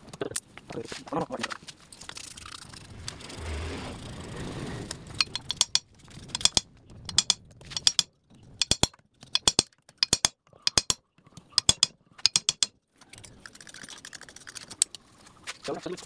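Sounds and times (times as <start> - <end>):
ratchet wrench clicking: 4.9 - 11.0, 11.6 - 12.7.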